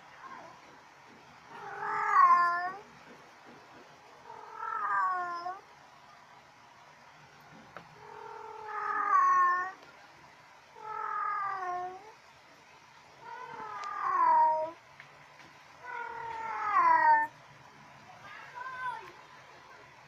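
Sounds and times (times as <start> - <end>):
cat meowing: 1.5 - 2.8, 4.2 - 5.6, 8.0 - 9.8, 10.8 - 12.1, 13.2 - 14.8, 15.8 - 17.3.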